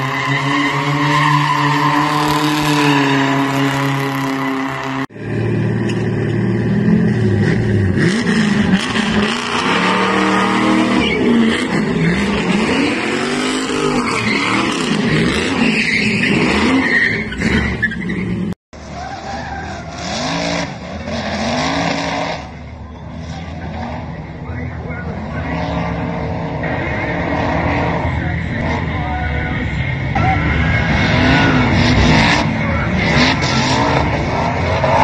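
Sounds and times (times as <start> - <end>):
truck engine revving: 0.0 - 35.0
tyres squealing: 9.2 - 20.4.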